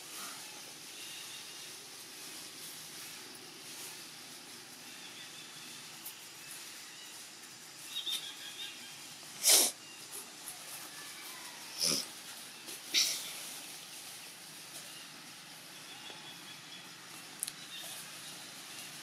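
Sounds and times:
steady outdoor hiss: 0.0 - 19.0
loud breathy burst: 9.4 - 9.8.

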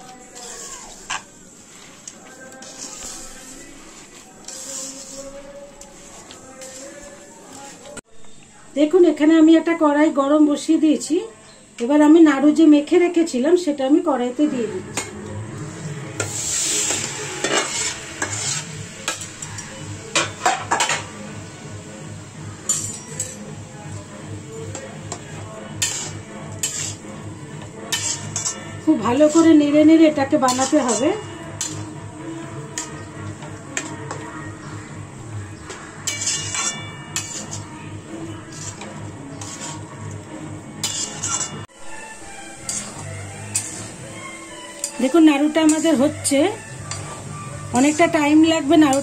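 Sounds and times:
mixture sizzling in hot pan: 0.0 - 7.9, 14.4 - 49.0
utensils scraping and knocking: 0.0 - 8.0, 16.2 - 21.1, 24.6 - 29.7, 30.3 - 34.3, 35.7 - 41.7, 42.6 - 44.0, 44.7 - 48.2.

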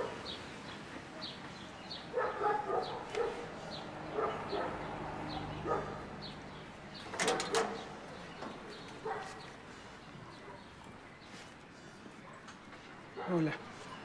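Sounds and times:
dog barking: 2.1 - 4.9, 5.6 - 6.1, 9.0 - 9.5, 13.2 - 13.5.

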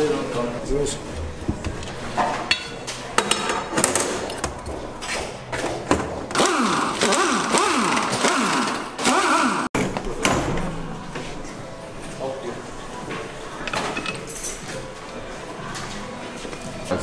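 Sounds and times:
pneumatic wrench whirring: 6.3 - 9.7.

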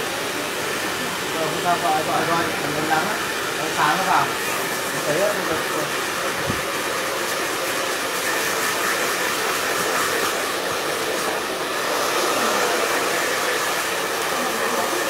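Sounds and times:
hair dryer running: 0.0 - 15.0.

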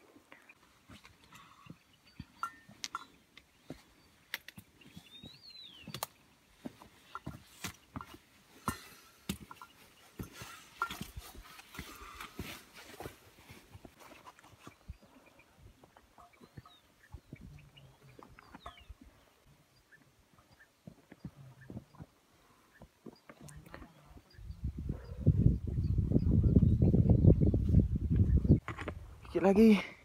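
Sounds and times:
footsteps on rocky trail: 0.4 - 24.5
trekking pole taps: 7.1 - 11.9.

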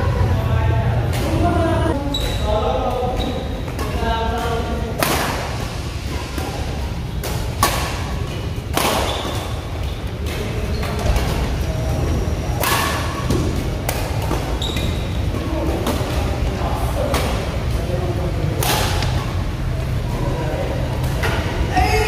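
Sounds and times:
rackets hitting shuttlecock: 7.1 - 11.4, 12.6 - 16.2, 18.6 - 19.3.

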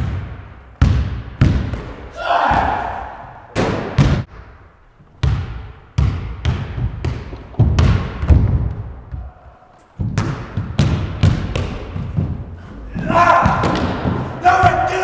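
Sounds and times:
basketball bouncing on wooden floor: 0.0 - 2.8, 5.0 - 9.3, 10.0 - 14.8.

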